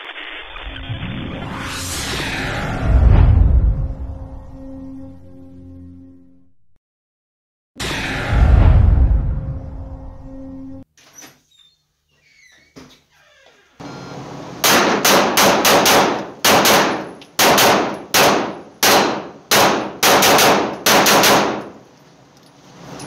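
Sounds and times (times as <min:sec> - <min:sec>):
rapid pistol shots with echo: 0:14.6 - 0:21.8.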